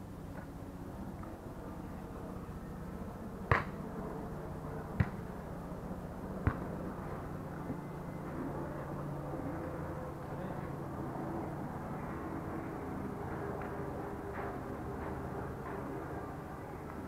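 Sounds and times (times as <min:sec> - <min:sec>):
low background hum: 0:00.0 - 0:17.0
volleyball slaps: 0:03.5 - 0:03.8, 0:05.0 - 0:05.2, 0:06.4 - 0:06.7.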